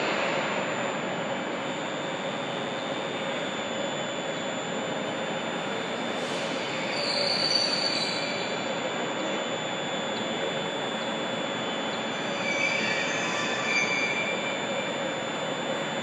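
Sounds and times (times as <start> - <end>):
train wheels squealing on rails: 6.1 - 15.2.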